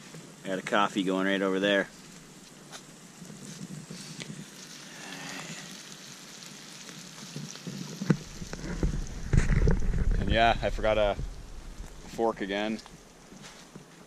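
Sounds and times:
mushrooms sizzling in a pan: 0:00.0 - 0:13.6
low rumble on microphone: 0:08.1 - 0:13.1.

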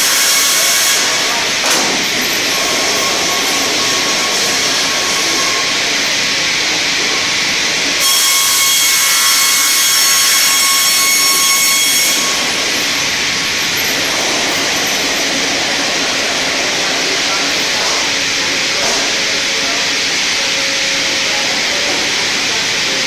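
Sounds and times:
sawmill whirring: 0:00.0 - 0:23.0.

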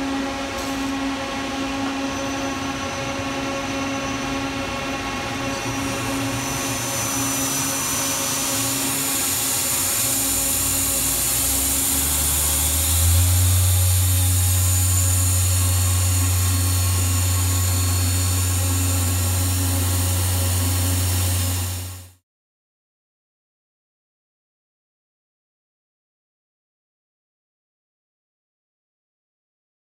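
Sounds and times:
lathe humming: 0:00.0 - 0:22.1.

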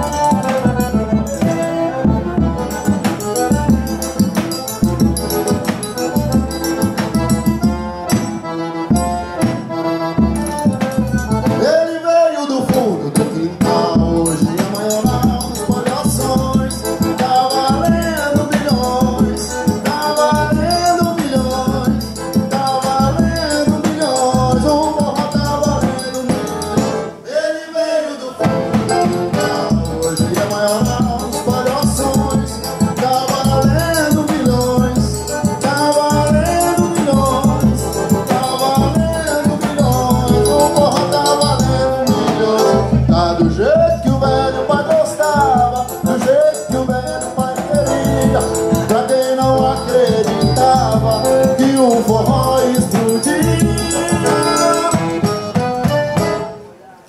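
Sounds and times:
bass drum beat: 0:00.0 - 0:11.8, 0:12.7 - 0:27.1, 0:28.4 - 0:56.3
accordion melody: 0:00.0 - 0:57.0.

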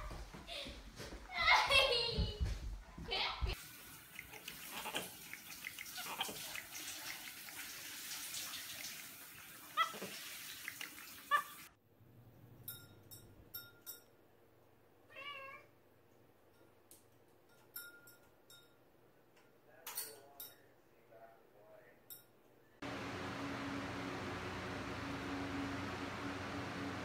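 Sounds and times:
cat meow: 0:15.1 - 0:15.7.

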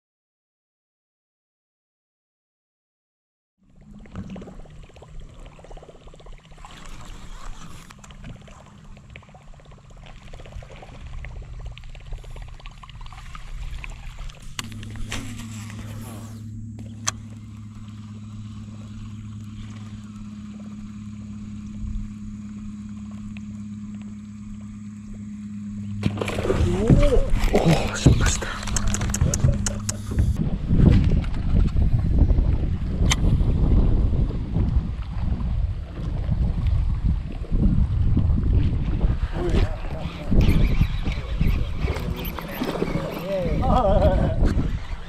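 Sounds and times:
boat motor humming: 0:03.6 - 0:45.0
sharp click: 0:28.6 - 0:30.3.

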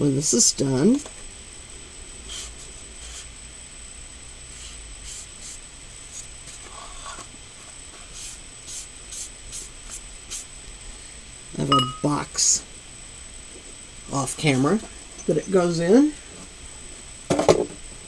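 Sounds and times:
faint steady high whine: 0:00.0 - 0:18.0
foam brush swishing over damp paper: 0:04.5 - 0:07.0
low hum: 0:10.7 - 0:14.1.

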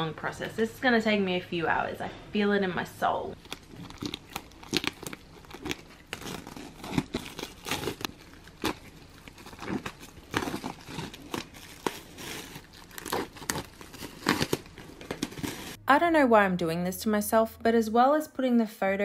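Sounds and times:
plastic shrink-wrap crinkling: 0:03.4 - 0:15.8.

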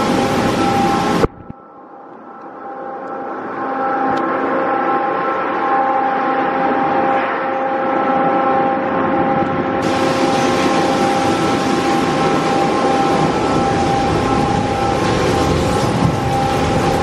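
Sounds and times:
machinery whine: 0:00.0 - 0:17.0
spinning car wash brushes: 0:09.8 - 0:17.0.

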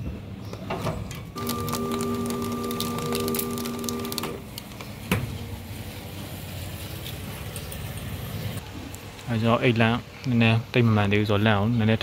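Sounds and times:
low machine hum: 0:01.4 - 0:04.4.

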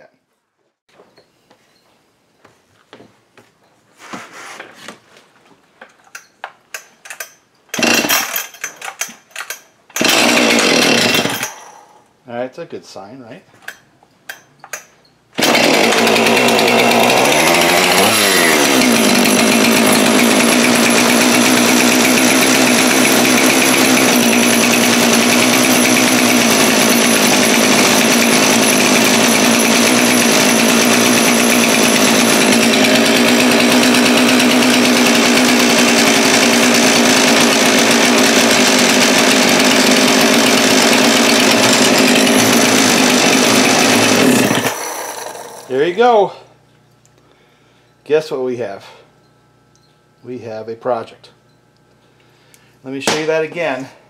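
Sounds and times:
chainsaw engine running: 0:07.8 - 0:08.6, 0:09.9 - 0:11.9, 0:15.4 - 0:46.5.

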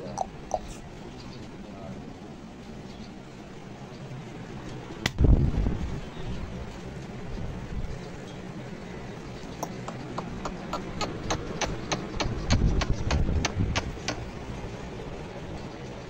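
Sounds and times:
sharp clicks: 0:09.6 - 0:14.2.

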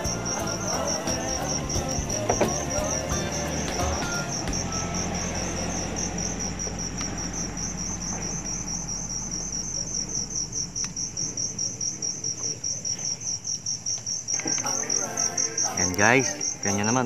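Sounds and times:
low hum: 0:00.0 - 0:12.3
crickets chirping: 0:00.0 - 0:17.0.

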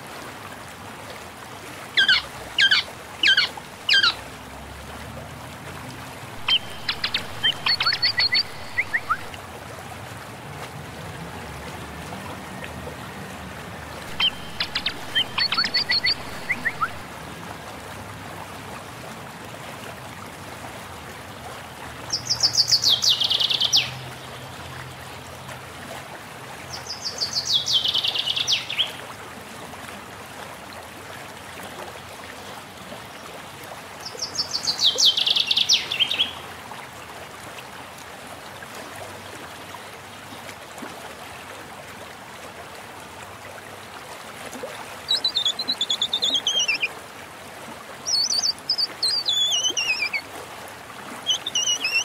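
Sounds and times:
bird trilling: 0:02.0 - 0:04.2, 0:06.4 - 0:09.3, 0:14.1 - 0:17.0, 0:45.1 - 0:46.9, 0:48.1 - 0:50.2, 0:51.3 - 0:52.0
running water hiss: 0:06.0 - 0:09.4, 0:14.0 - 0:17.2, 0:47.9 - 0:52.0
falling bird call: 0:06.4 - 0:09.3, 0:14.1 - 0:17.0.

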